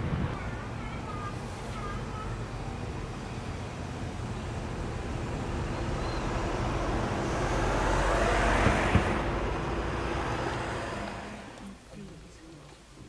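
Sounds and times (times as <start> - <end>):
car driving past: 4.6 - 11.7.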